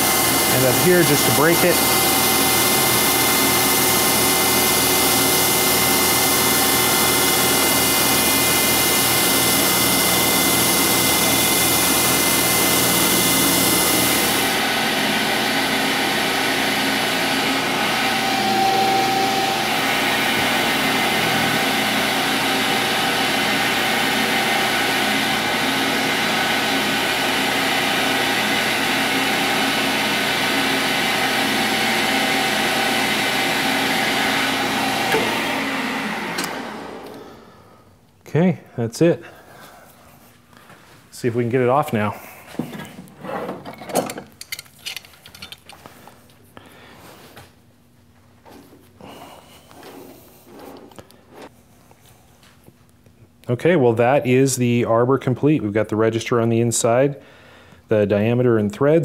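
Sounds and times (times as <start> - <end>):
metal lathe running with whine: 0.0 - 37.2.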